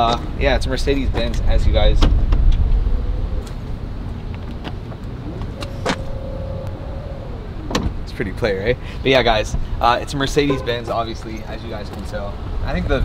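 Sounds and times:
electric tailgate motor whine: 5.0s - 8.1s.

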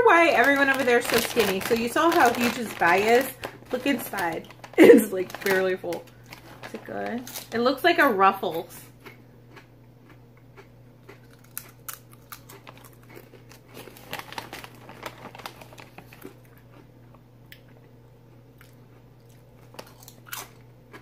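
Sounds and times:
foil snack bag crinkling: 0.0s - 8.7s, 11.2s - 16.8s
potato chips crunching: 0.0s - 17.8s, 18.6s - 21.0s.

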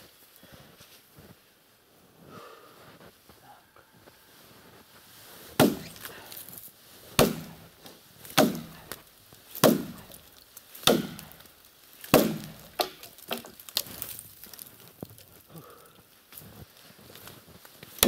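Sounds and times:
axe chopping wood: 5.6s - 6.4s, 7.2s - 14.2s.

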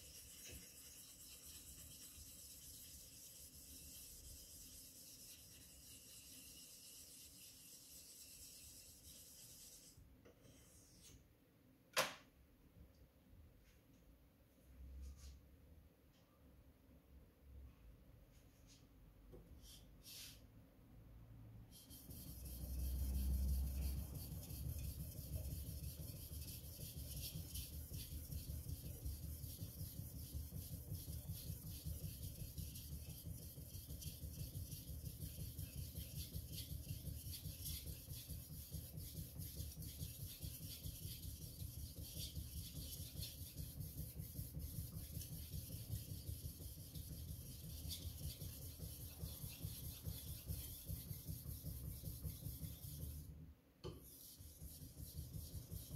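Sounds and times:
knife rasping on whetstone: 0.0s - 10.0s, 21.7s - 53.2s.

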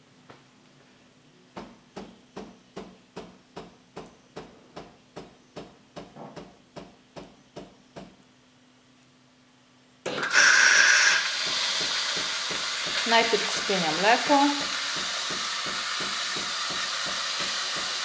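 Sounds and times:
milk frother hissing: 10.1s - 18.0s
espresso machine knocking: 11.2s - 18.0s.

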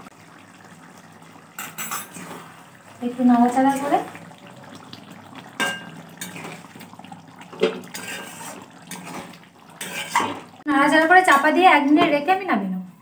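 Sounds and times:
spatula scraping through gravy: 7.9s - 10.5s.

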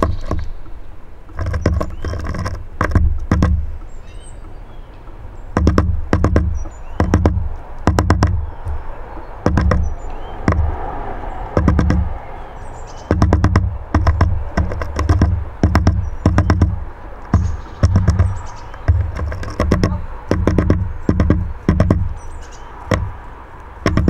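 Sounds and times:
bird tapping on wooden feeder: 0.0s - 24.0s
faint high bird calls: 3.8s - 5.6s, 6.4s - 23.2s.

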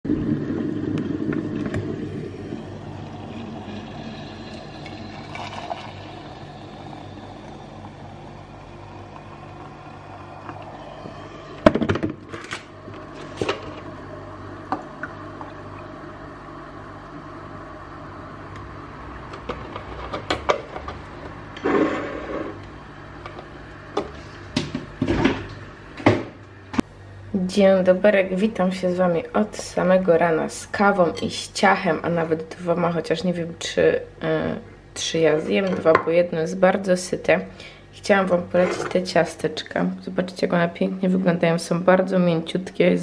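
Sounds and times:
steady low hum: 0.0s - 43.0s
milk pouring into a ceramic mug: 2.8s - 11.1s.

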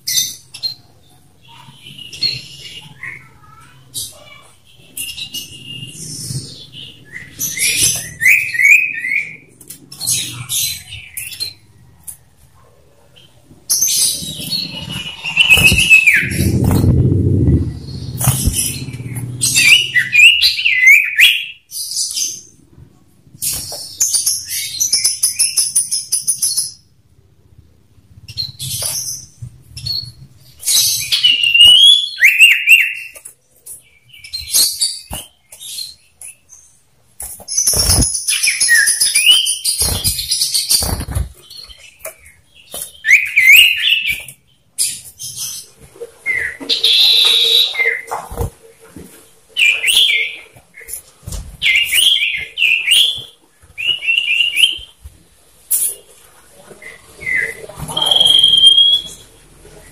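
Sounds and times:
bird chattering trills and whistles: 13.7s - 21.6s, 57.2s - 59.2s.

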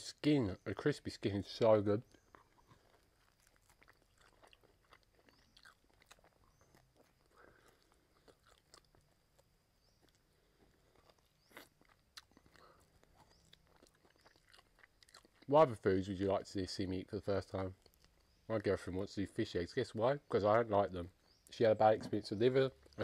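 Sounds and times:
chewing and mouth smacks: 2.1s - 15.5s, 17.8s - 18.4s.

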